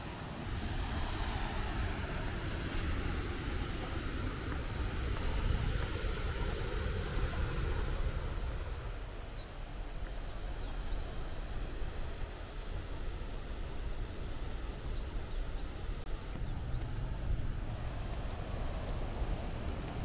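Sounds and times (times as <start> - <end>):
steady low rumble: 0.0 - 20.0
small birds chirping: 9.2 - 17.4.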